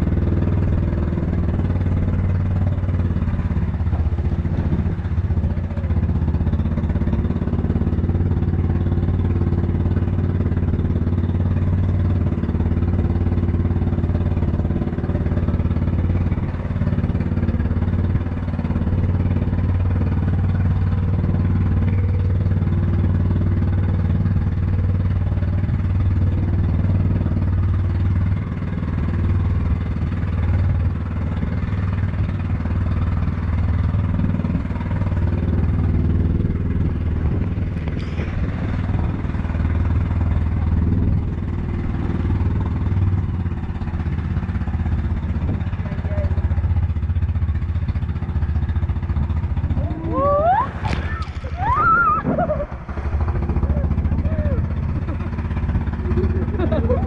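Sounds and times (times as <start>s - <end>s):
motorboat engine drone: 0.0s - 57.0s
water rushing over hull: 49.0s - 57.0s.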